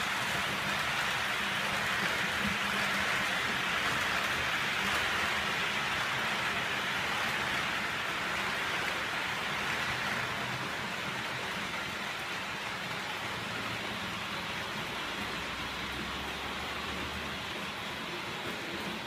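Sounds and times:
model train wheels rattling on rails: 0.0 - 14.7.

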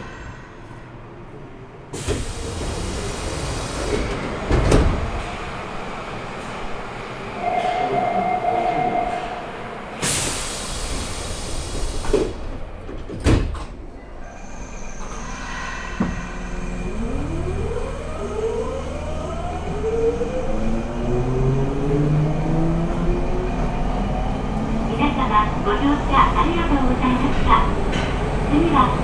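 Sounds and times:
air hiss: 10.0 - 12.3.

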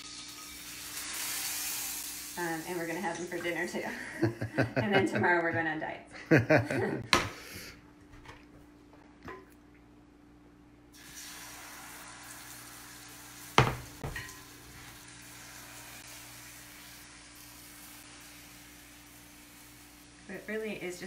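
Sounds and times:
batter sizzling in a frying pan: 0.0 - 3.4, 10.9 - 21.0
sharp knocks: 13.6 - 14.2.

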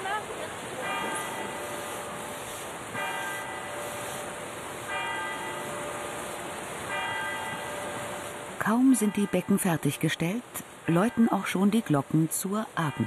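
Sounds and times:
church bell tolling: 0.8 - 8.4.

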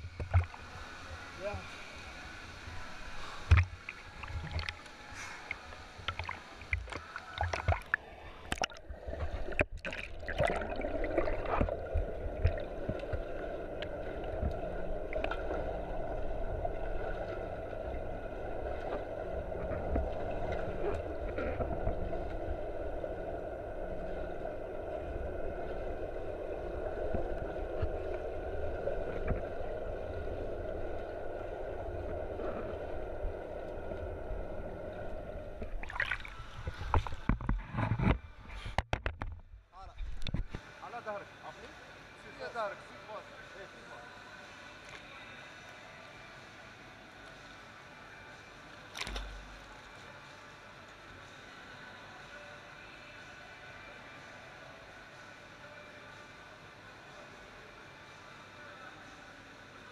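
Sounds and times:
muffled underwater rumble: 0.0 - 40.7
water splashing and sloshing: 0.0 - 41.0, 43.8 - 53.2.

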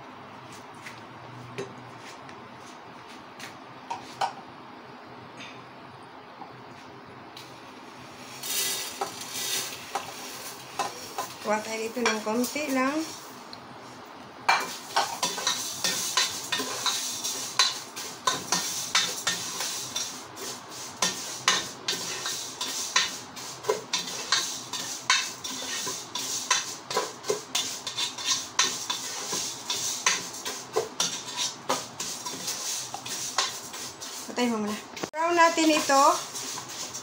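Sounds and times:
noodles sizzling in oil: 7.4 - 37.0
ladle clicking and scraping a pot: 21.0 - 34.4, 35.6 - 37.0.

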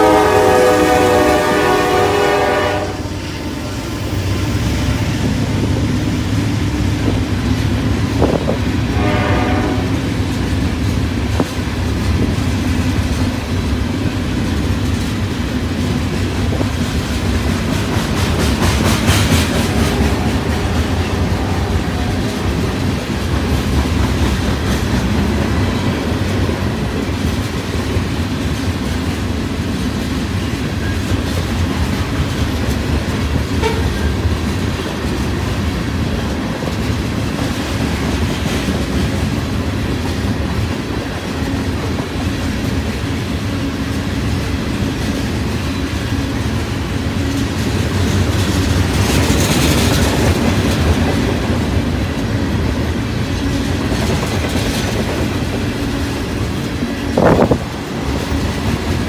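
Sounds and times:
locomotive horn: 0.0 - 4.0, 8.8 - 10.1, 19.6 - 22.8, 33.6 - 34.2
train wheels clattering: 3.8 - 59.0.

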